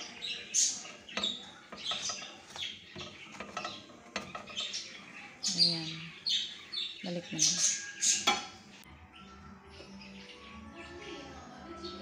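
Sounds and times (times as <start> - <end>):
small birds chirping: 0.0 - 12.0
utensils clinking against bowls: 0.2 - 5.7.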